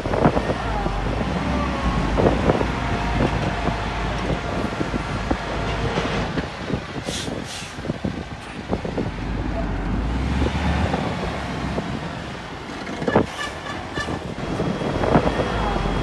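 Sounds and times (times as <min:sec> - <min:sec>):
diesel engine rumbling: 0:00.0 - 0:16.0
short hisses: 0:07.1 - 0:07.8.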